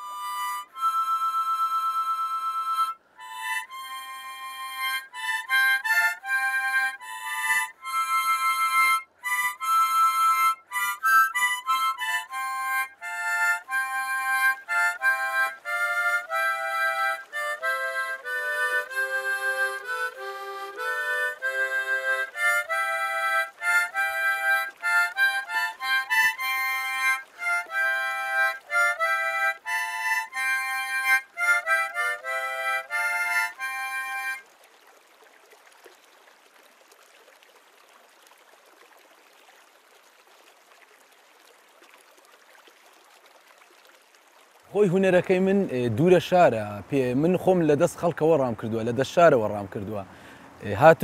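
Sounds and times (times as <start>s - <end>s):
harmonica melody: 0.0s - 34.4s.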